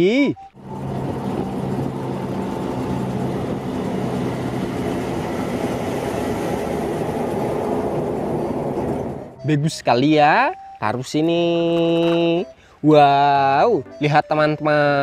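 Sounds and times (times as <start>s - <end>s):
truck engine drone: 0.0s - 10.0s
road and tyre noise: 0.0s - 12.8s.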